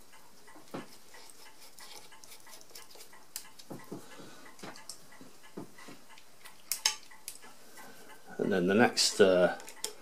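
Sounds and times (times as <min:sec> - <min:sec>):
screwdriver ticks and scrapes: 0:09.2 - 0:10.0.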